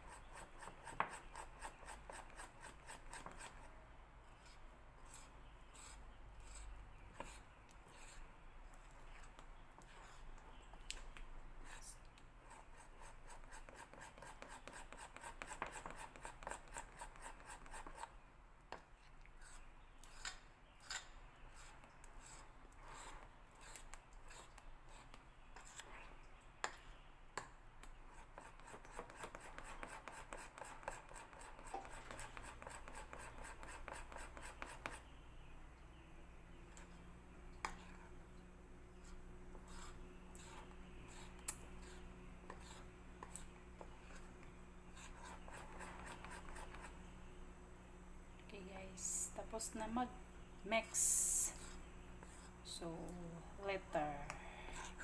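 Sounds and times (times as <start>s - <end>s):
spoon beating batter in bowl: 0.0s - 11.3s, 12.0s - 18.2s, 19.5s - 35.2s, 36.6s - 47.0s.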